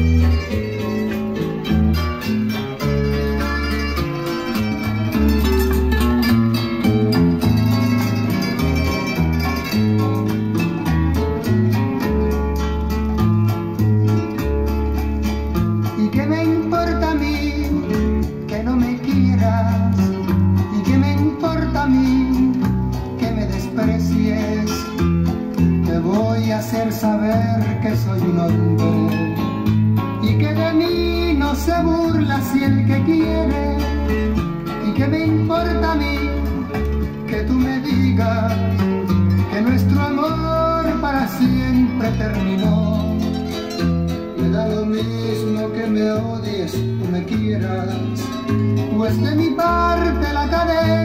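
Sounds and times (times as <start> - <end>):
guitar-led song with bass: 0.0 - 51.0
person singing: 15.8 - 51.0.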